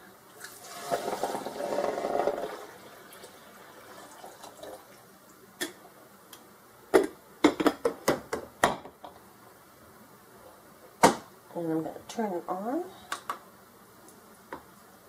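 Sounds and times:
water pouring into coffee maker: 0.4s - 5.0s.

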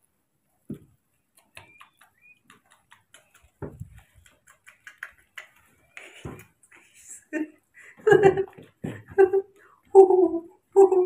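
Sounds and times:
light ticks and taps: 0.7s - 6.8s.

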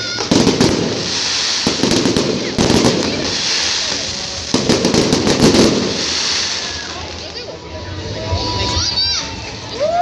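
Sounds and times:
fireworks bangs: 0.0s - 7.6s
fireworks crackling: 0.0s - 9.8s.

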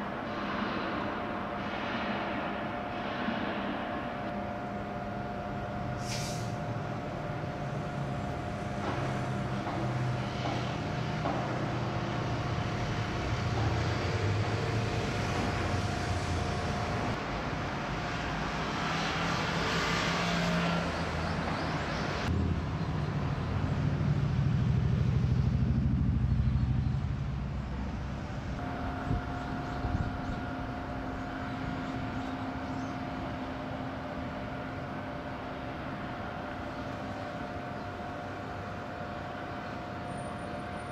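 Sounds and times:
machinery hum: 0.0s - 40.9s
low engine rumble: 21.0s - 40.9s.

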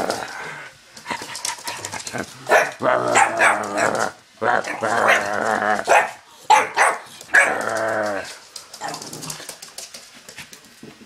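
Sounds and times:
puppy barking: 2.5s - 4.0s, 5.0s - 7.6s.

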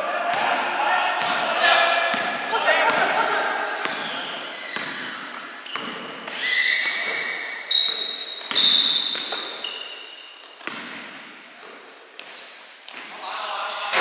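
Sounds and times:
shoes squeaking on court: 1.9s - 14.0s
basketball bouncing on floor: 2.0s - 3.1s, 3.7s - 6.2s, 10.6s - 11.1s.

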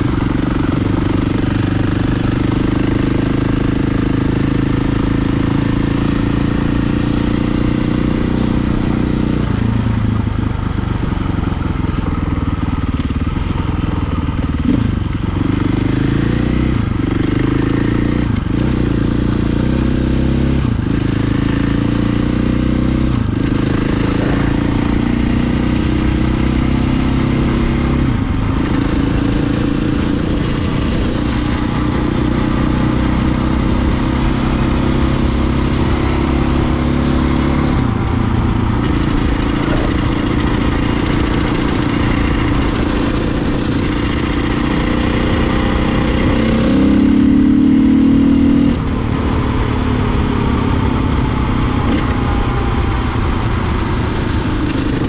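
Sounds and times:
vehicle engine running: 0.0s - 55.0s.

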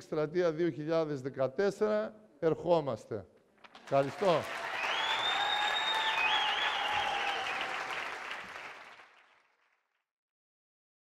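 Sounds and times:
audience applauding: 3.7s - 9.7s.

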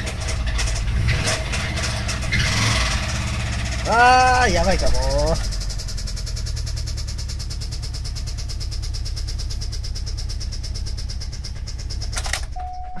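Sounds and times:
engine idling with rapid knocking: 0.0s - 13.0s
short rattle: 5.3s - 13.0s.

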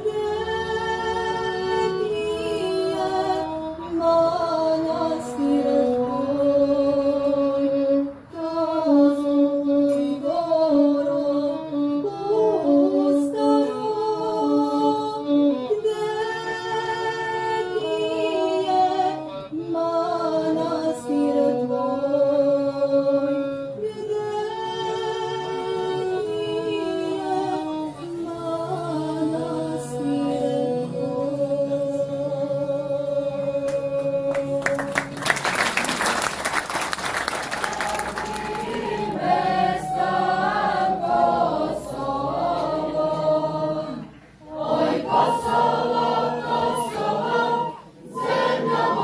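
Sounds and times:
group singing in harmony: 0.0s - 35.2s, 37.7s - 49.0s
applause: 34.3s - 39.1s.

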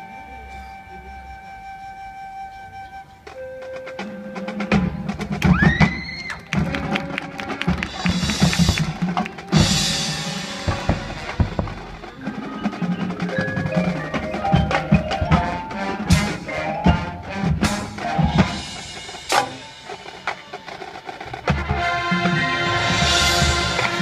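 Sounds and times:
marching band playing: 0.0s - 24.0s
marching drums: 3.6s - 24.0s
marimba and bells: 12.0s - 20.8s.

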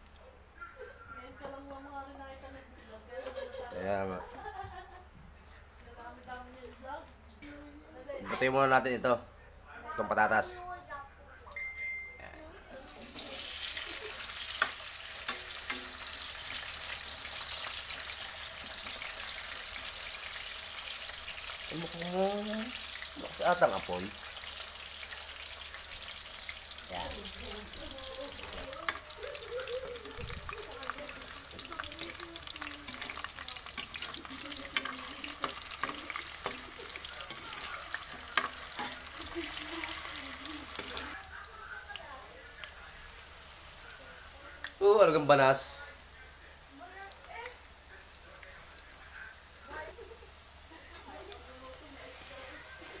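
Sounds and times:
potatoes sizzling in hot oil: 12.7s - 53.0s
metal ladle stirring in wok: 13.4s - 17.1s, 31.0s - 41.2s.

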